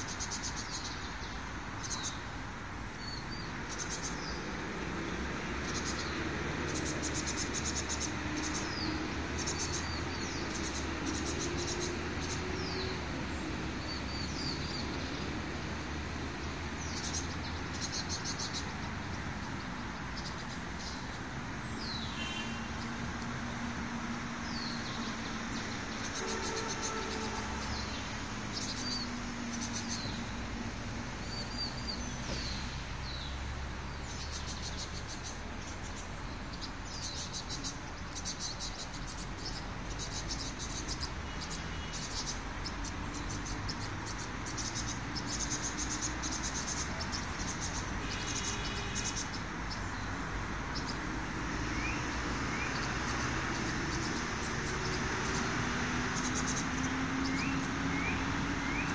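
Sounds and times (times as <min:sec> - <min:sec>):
insects chirring: 0:00.0 - 0:58.9
bird chirps: 0:16.8 - 0:23.0, 0:24.4 - 0:30.4, 0:31.2 - 0:50.0.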